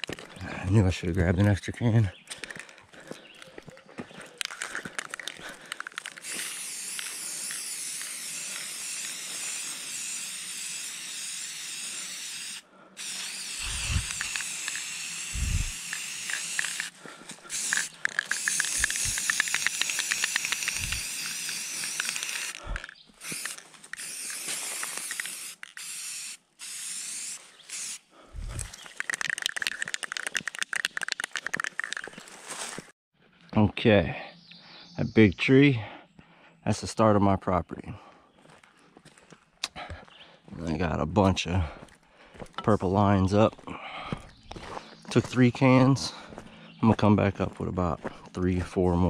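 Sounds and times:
spray paint can hissing: 5.0s - 32.1s.

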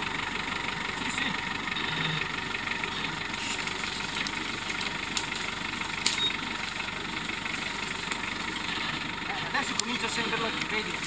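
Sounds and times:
engine running at low revs: 0.0s - 11.0s.

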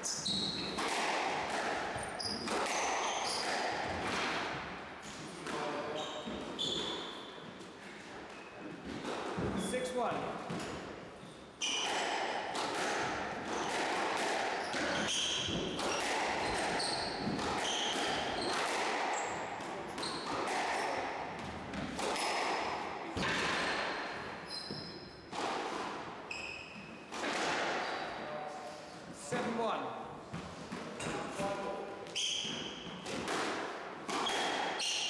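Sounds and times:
shoes squeaking on wooden floor: 0.0s - 0.8s, 1.9s - 4.1s, 5.0s - 9.8s, 14.6s - 20.9s, 24.1s - 25.3s, 32.1s - 33.0s
squash ball hits: 0.1s - 4.8s, 11.6s - 26.2s, 27.0s - 28.0s, 30.3s - 35.0s.

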